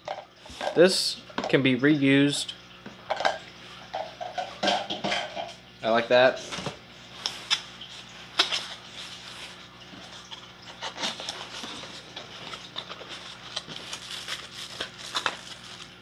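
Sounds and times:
cardboard rustling and crinkling: 0:08.4 - 0:16.0.

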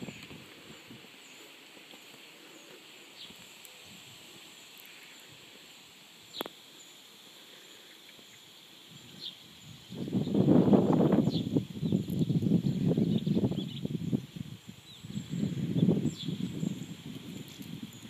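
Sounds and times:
falling bird chirps: 0:06.2 - 0:18.0.

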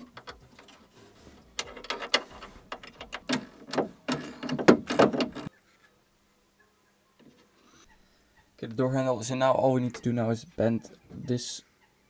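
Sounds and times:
door handle assembly clicks and rattles: 0:01.6 - 0:05.5.

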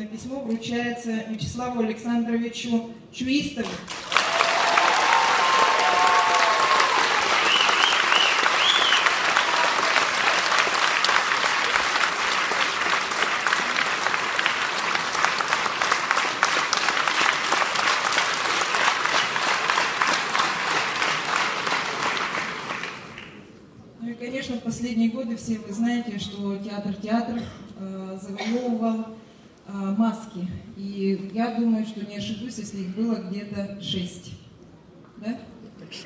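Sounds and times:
audience applauding: 0:03.9 - 0:23.4.

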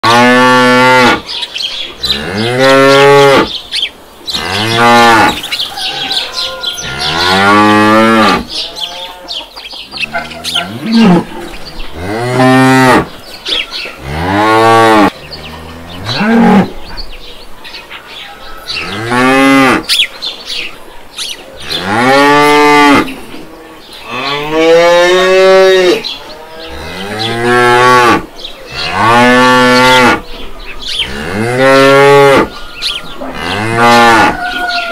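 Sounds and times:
cattle mooing: 0:00.0 - 0:01.2, 0:04.3 - 0:09.4, 0:10.0 - 0:13.1, 0:14.0 - 0:16.7, 0:21.6 - 0:30.2, 0:31.0 - 0:32.5, 0:33.2 - 0:34.9.

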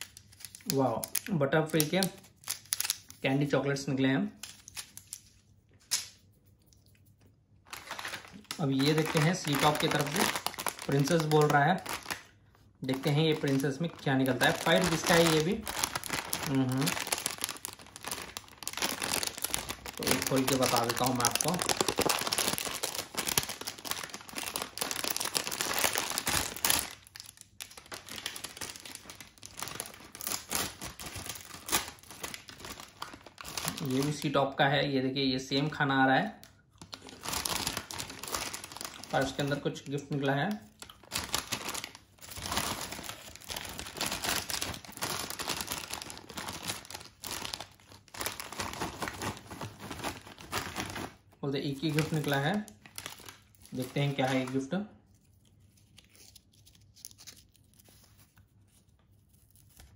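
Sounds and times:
snack packet crinkling: 0:00.0 - 0:03.5, 0:04.3 - 0:34.4, 0:36.3 - 0:59.9.

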